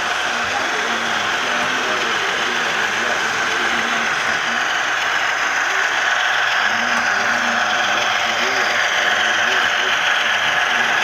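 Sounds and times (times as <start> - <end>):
model locomotive rattle and whir: 0.0 - 11.0.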